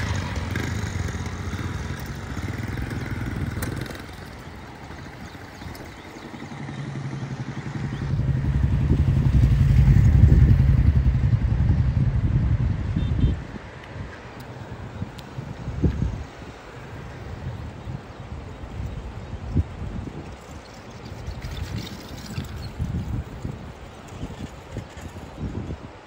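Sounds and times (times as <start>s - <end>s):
vehicles driving past: 0.0s - 26.0s.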